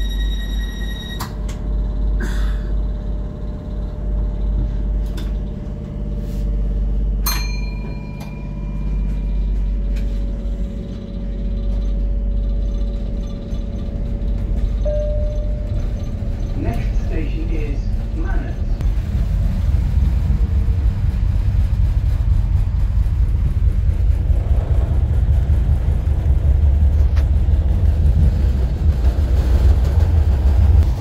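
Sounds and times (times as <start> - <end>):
train rumble and hum: 0.0 - 31.0
metallic ring: 7.2 - 9.4, 14.9 - 16.2
high steady tone: 14.8 - 17.0.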